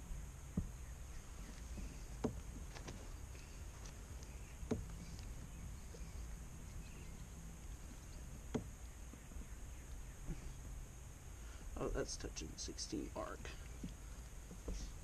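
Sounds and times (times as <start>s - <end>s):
steady low rumble: 0.0s - 15.0s
sharp knocks: 4.6s - 5.0s, 8.3s - 8.8s.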